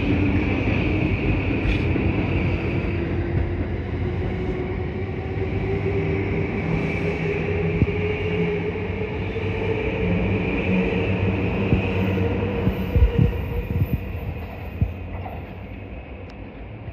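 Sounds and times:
train wheels rumbling on rail: 0:00.0 - 0:16.9.

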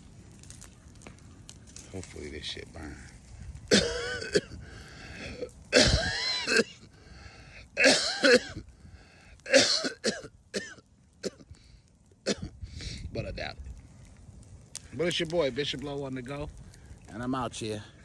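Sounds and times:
man clearing throat: 0:03.7 - 0:04.5, 0:05.7 - 0:06.8, 0:07.8 - 0:08.6, 0:09.5 - 0:10.7
man coughing: 0:03.7 - 0:04.5, 0:05.7 - 0:06.8, 0:07.8 - 0:08.6, 0:09.5 - 0:11.4.

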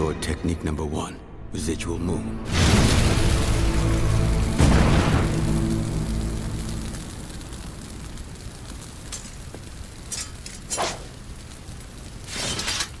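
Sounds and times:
large fire crackling: 0:02.4 - 0:13.0
rush of flame: 0:02.5 - 0:13.0.

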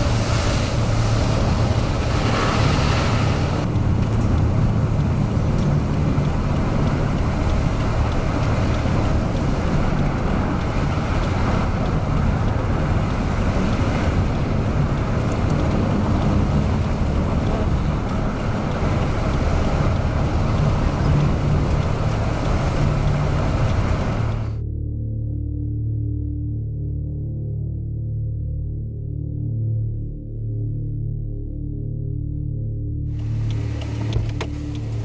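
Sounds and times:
car road and engine noise: 0:00.0 - 0:24.6, 0:33.0 - 0:35.0.

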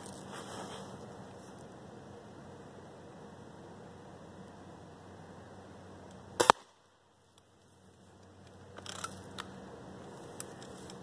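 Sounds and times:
short rustle: 0:00.0 - 0:01.6
bb gun firing: 0:06.4 - 0:06.8.

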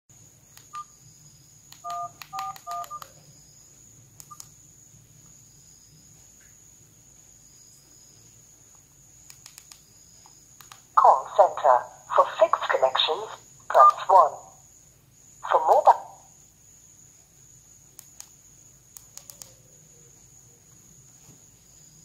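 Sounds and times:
phone keypad beeps: 0:01.8 - 0:03.2.

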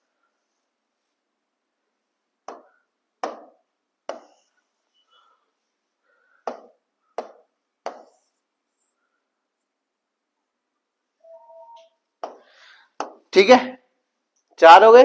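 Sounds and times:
pen tapping on screen: 0:06.5 - 0:08.3.

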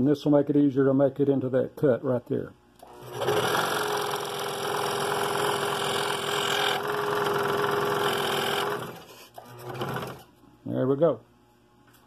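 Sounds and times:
scroll saw cutting wood: 0:02.8 - 0:10.2.

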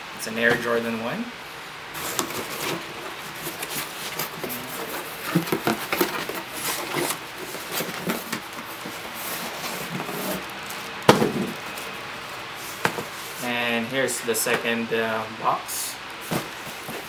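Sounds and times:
cardboard flaps scraping and rustling: 0:01.9 - 0:13.8, 0:16.2 - 0:17.0.

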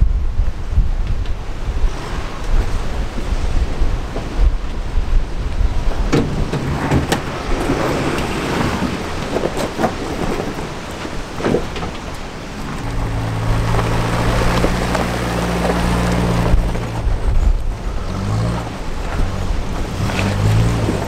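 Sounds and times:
wind noise on microphone: 0:00.0 - 0:21.0
vehicle engine running: 0:12.1 - 0:21.0.

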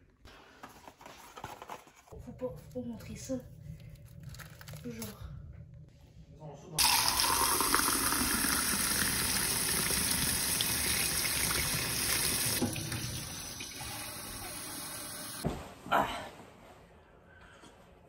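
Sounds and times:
tap water filling a ceramic mug: 0:06.8 - 0:13.8.

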